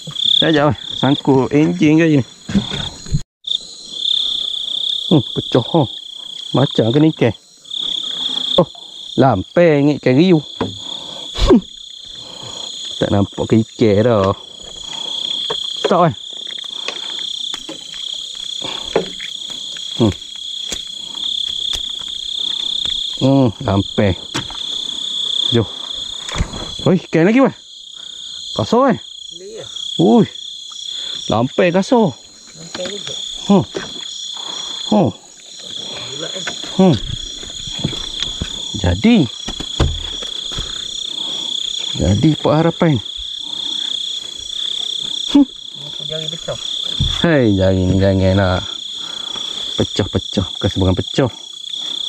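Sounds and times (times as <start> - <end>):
crickets and night insects: 0.0 - 52.0
frogs calling: 0.0 - 52.0
dull knock: 39.5 - 40.7, 47.0 - 47.2.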